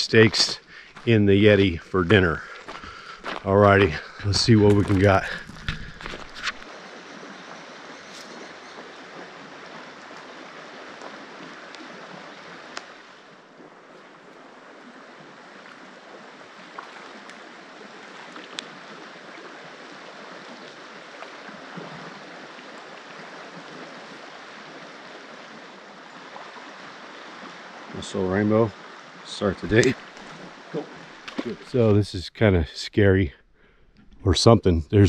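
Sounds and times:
river water rushing: 0:02.2 - 0:31.9
faint sharp clicks: 0:12.7 - 0:12.9.

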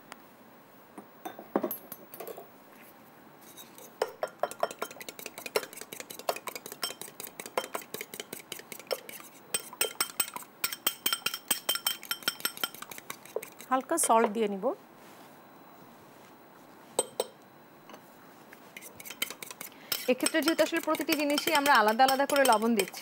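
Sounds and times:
fork clinking against bowl: 0:04.0 - 0:14.2, 0:19.0 - 0:23.0.

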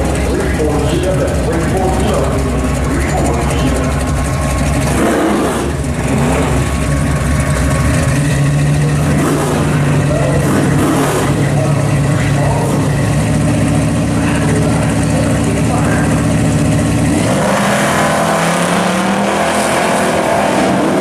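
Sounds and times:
engine throttle blipping: 0:00.0 - 0:21.0
race car engines idling: 0:00.0 - 0:21.0.

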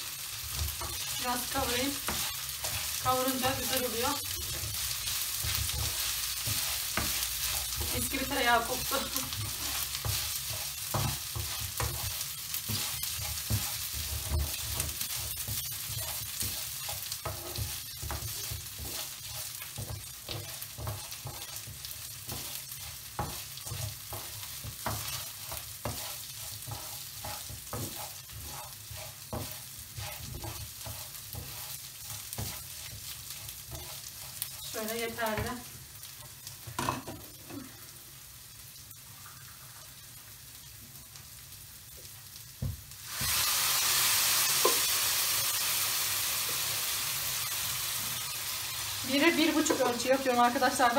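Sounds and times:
wooden spoon scraping a pan: 0:00.0 - 0:37.4, 0:49.1 - 0:50.9
rice sizzling in a frying pan: 0:00.0 - 0:50.9.

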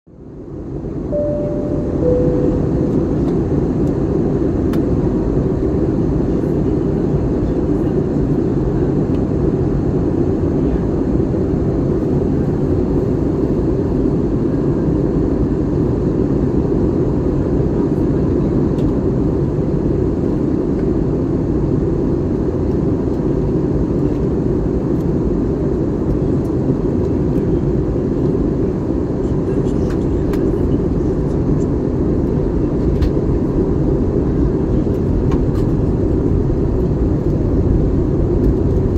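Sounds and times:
airliner cabin engine noise: 0:00.1 - 0:38.9
short tone: 0:01.1 - 0:03.7.

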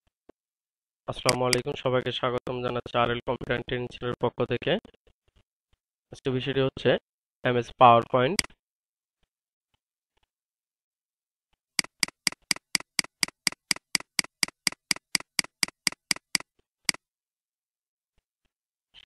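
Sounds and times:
computer mouse clicking: 0:11.8 - 0:17.0.

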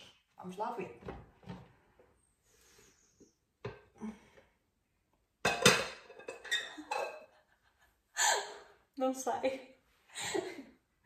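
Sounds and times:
pan and plate clattering: 0:05.4 - 0:07.3.

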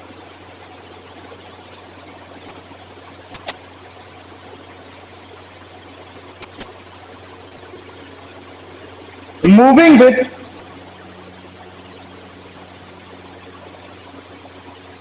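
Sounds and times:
low hum: 0:07.0 - 0:15.0.

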